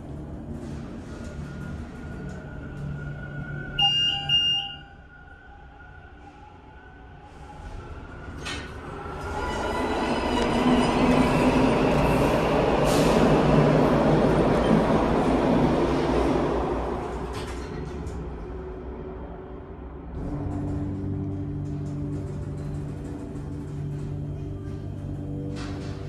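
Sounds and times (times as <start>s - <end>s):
subway train rumble: 0.0s - 26.0s
elevator doors opening: 0.3s - 4.8s, 8.0s - 18.4s, 20.2s - 26.0s
elevator chime: 3.8s - 4.9s.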